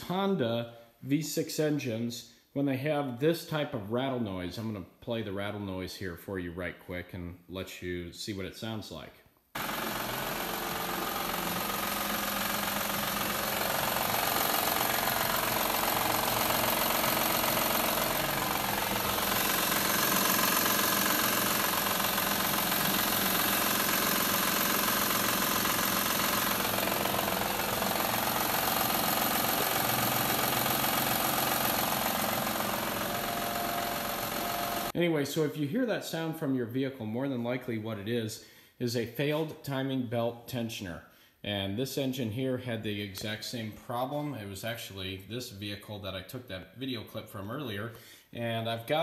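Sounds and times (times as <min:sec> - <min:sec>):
car engine running: 0:09.6 - 0:34.9
timing belt rattle: 0:09.7 - 0:33.1.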